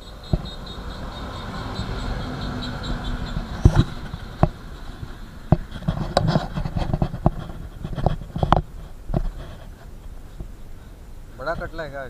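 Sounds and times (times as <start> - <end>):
metal rubbing and scraping: 1.2 - 10.5.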